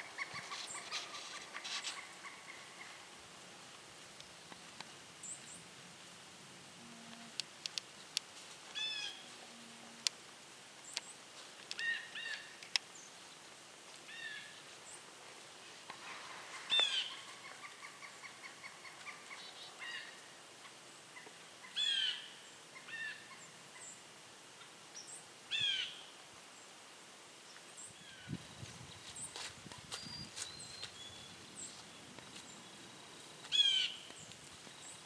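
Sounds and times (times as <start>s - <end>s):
rapid bird chatter: 0.0s - 3.0s
harsh bird calls: 30.0s - 34.3s.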